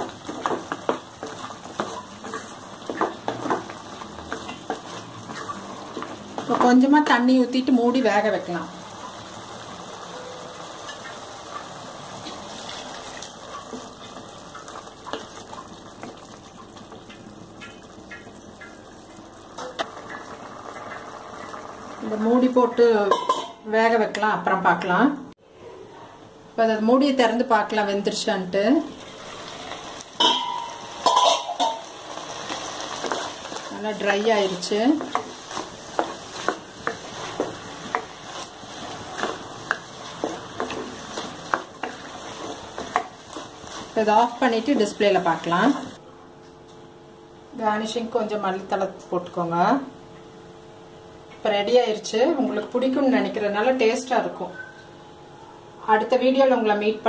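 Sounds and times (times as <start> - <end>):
spatula stirring food: 0.0 - 6.9, 31.0 - 46.0
faint sizzle: 0.0 - 46.0.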